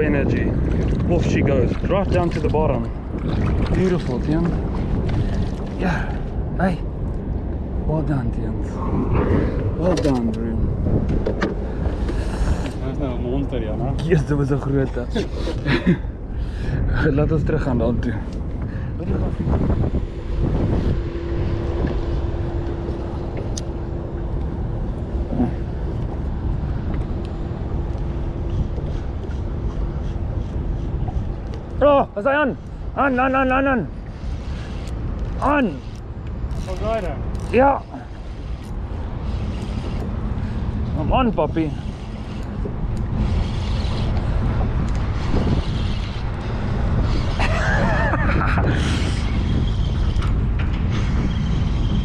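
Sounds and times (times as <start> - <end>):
water noise: 0.0 - 52.0
wind rumbling on microphone: 0.0 - 52.0
boat motor humming: 18.3 - 48.2.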